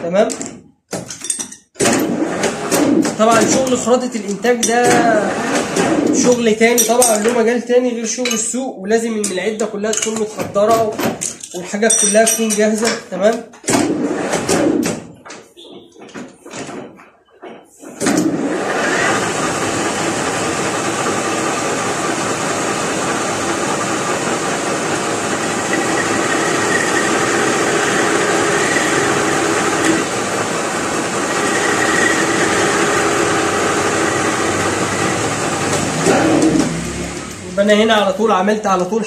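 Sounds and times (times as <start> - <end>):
metal lathe running: 18.5 - 37.5.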